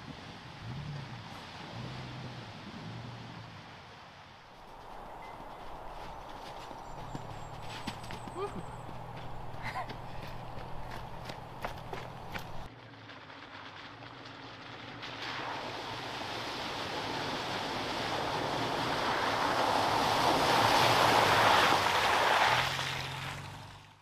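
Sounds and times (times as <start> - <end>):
tyres splashing through puddle: 0.0 - 24.0
truck engine running: 4.6 - 15.0.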